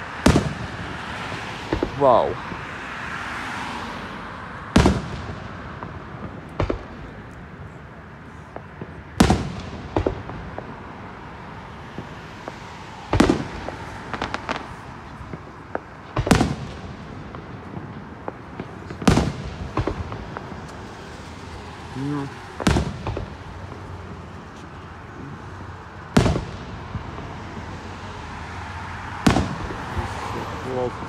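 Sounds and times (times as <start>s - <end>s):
firework shells booming: 0.1s - 2.7s, 4.7s - 7.8s, 8.5s - 28.0s, 29.0s - 31.0s
firework pops and crackles: 4.8s - 7.8s, 8.4s - 11.2s, 11.8s - 27.9s, 29.2s - 31.0s.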